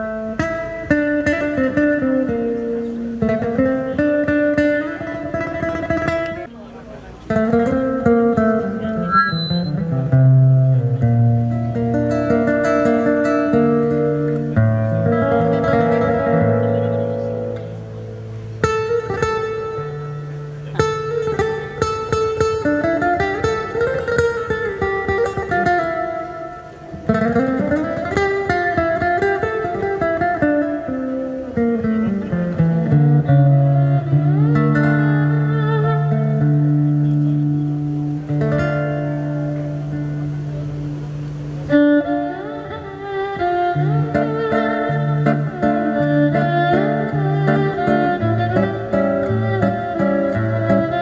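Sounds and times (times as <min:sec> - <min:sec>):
plucked string music with guitar: 0:00.0 - 0:51.0.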